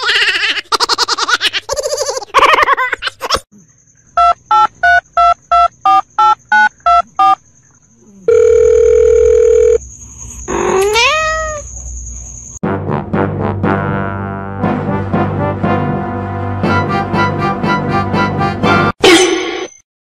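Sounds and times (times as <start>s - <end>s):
telephone keypad beeps: 4.2s - 7.4s
steady phone tone: 8.3s - 9.8s
cat meowing: 10.5s - 11.7s.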